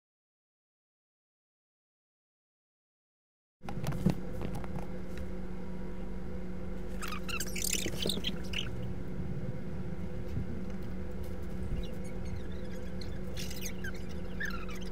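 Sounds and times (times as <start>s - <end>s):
low electrical hum: 3.6s - 14.9s
high squeaks and chirps: 6.9s - 8.8s, 11.4s - 14.9s.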